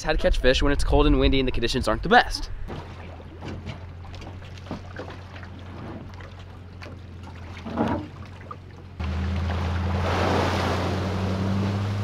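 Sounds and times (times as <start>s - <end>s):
water trickling and lapping: 2.6s - 12.0s
boat hull knocking: 2.7s - 8.9s
water rushing: 2.7s - 12.0s.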